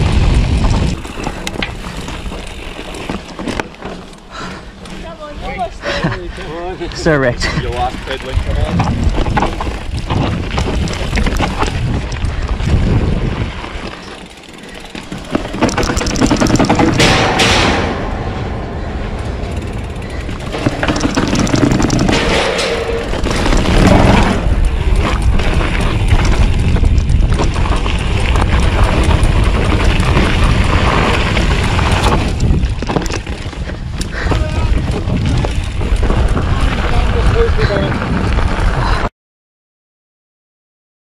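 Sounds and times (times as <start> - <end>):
wind buffeting microphone: 0.0 - 2.7, 5.7 - 13.9, 15.4 - 39.1
bike rattling over dirt trail: 0.0 - 39.1
tyre rumble on gravel: 8.3 - 14.4, 20.4 - 33.5
bike clattering down metal stairs: 14.2 - 25.2.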